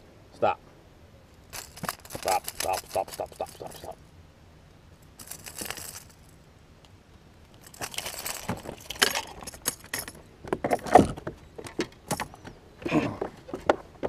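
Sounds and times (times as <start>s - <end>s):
fishing hooks clinking and jangling: 1.5s - 4.0s, 5.1s - 6.3s, 7.5s - 10.9s.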